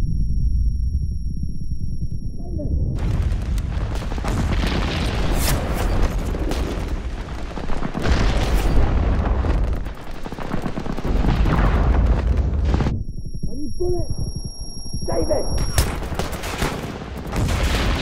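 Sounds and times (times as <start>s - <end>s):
deep continuous rumble: 0.0s - 7.3s
booming explosions: 2.6s - 18.0s
dense gunfire: 3.0s - 13.0s, 15.2s - 18.0s.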